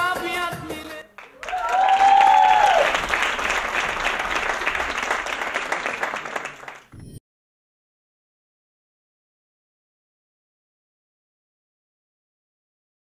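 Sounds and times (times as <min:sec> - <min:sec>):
audience applauding: 0:01.2 - 0:06.9
person cheering: 0:01.3 - 0:03.1.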